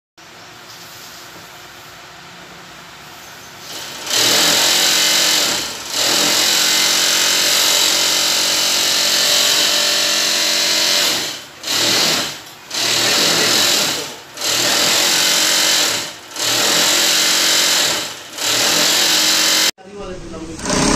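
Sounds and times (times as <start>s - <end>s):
sewing machine stitching: 3.7s - 19.7s, 20.5s - 20.9s.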